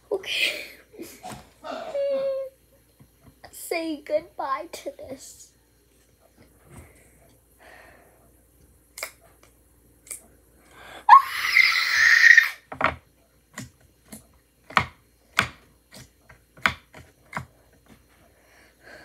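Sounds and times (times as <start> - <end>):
girl crying wail: 1.7 - 2.5, 11.1 - 12.6.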